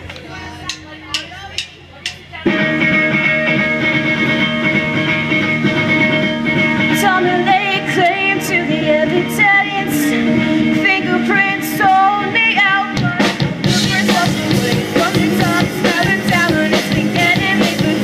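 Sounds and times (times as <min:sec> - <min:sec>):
drums and cymbal hits: 0:00.0 - 0:07.1, 0:12.6 - 0:18.0
bass guitar: 0:00.0 - 0:18.0
distorted electric guitars: 0:00.0 - 0:18.0
person singing: 0:06.8 - 0:18.0.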